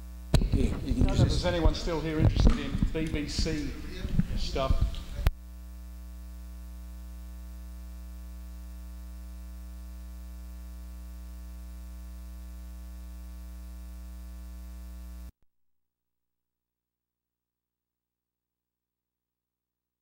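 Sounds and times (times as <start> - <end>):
electrical mains hum and buzz: 0.0 - 15.3.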